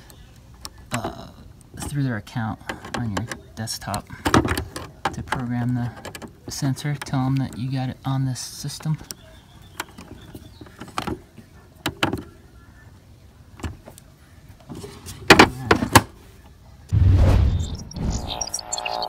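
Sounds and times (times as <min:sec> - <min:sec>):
rushing whoosh sound effect: 0:16.9 - 0:19.0.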